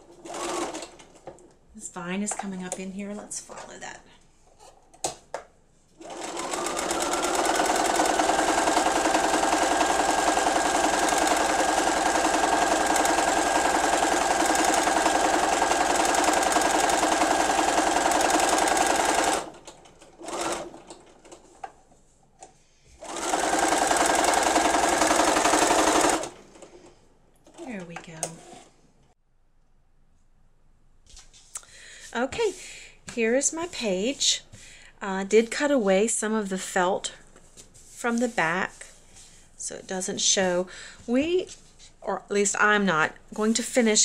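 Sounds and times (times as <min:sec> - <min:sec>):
sewing machine stitching: 0:00.1 - 0:01.2, 0:06.0 - 0:21.6, 0:23.0 - 0:26.7.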